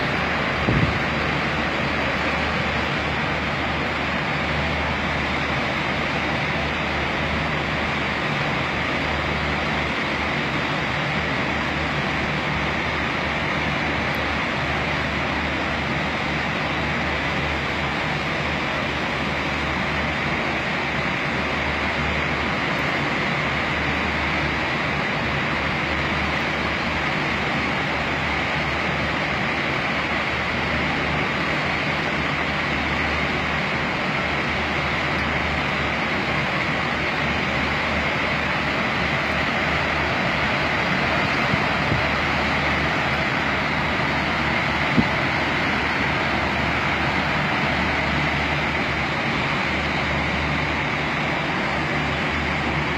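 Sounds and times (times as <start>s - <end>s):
floodwater rushing: 0.0s - 52.9s.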